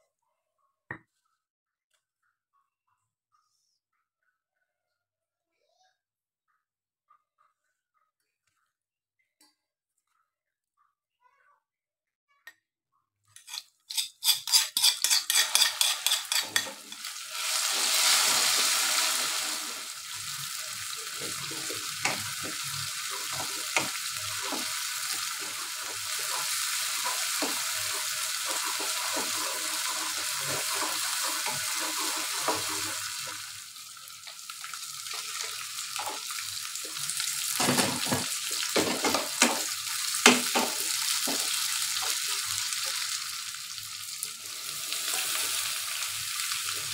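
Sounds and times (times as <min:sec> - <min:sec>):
paste sizzling in hot oil: 0:13.4 - 0:46.9
wooden spatula stirring in wok: 0:21.1 - 0:33.4.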